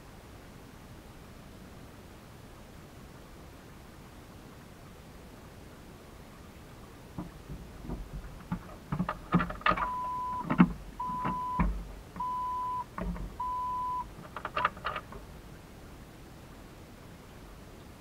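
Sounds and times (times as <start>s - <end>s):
knocks and clicks: 7.2s - 13.6s, 14.2s - 15.2s
electronic beeps: 9.8s - 14.1s.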